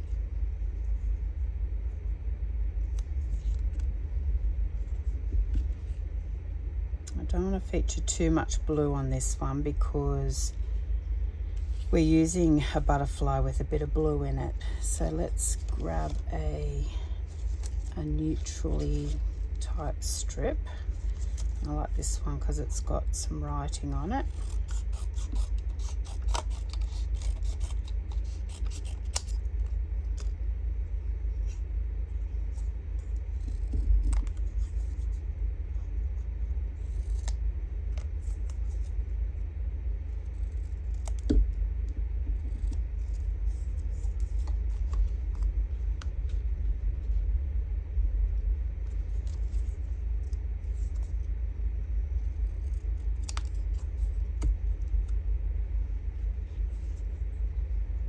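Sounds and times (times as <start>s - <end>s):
steady low rumble: 0.0s - 58.0s
scissors snipping paper: 23.7s - 29.4s.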